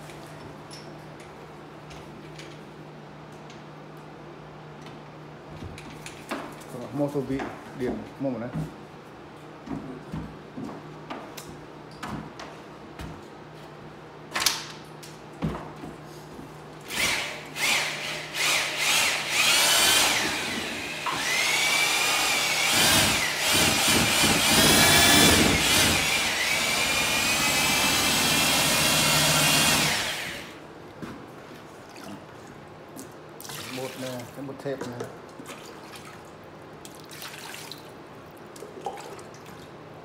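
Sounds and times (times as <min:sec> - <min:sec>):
paddle mixer drill whining: 0:16.9 - 0:30.6.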